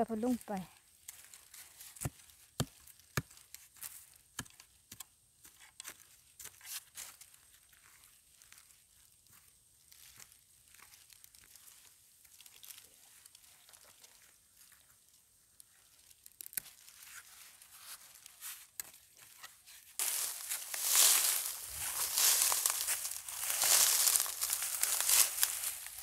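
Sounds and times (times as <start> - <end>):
rustling through dry grass: 0.0 - 4.3, 5.5 - 26.0
gloved hands scraping soil: 16.6 - 26.0.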